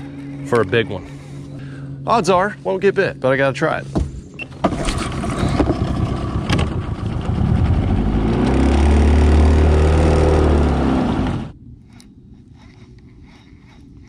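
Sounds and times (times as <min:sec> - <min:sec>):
outboard motor running: 0:04.4 - 0:11.5.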